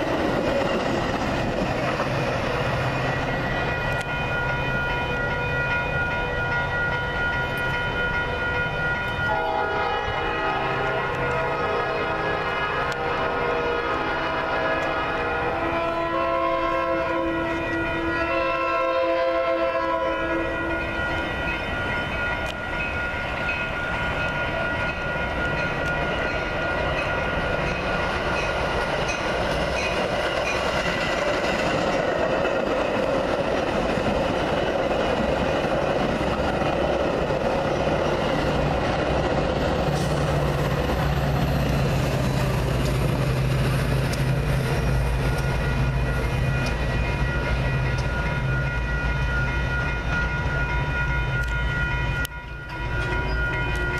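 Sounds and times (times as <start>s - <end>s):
train rushing past with wheel clatter: 0.0s - 53.9s
train horn: 8.0s - 21.1s.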